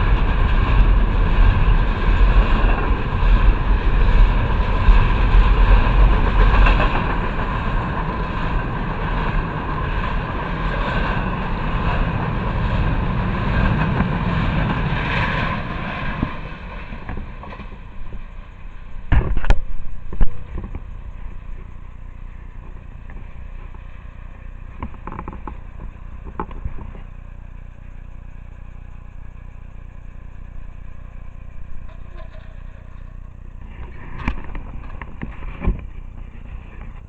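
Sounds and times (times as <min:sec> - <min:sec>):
freight train rumbling: 0:00.0 - 0:37.0.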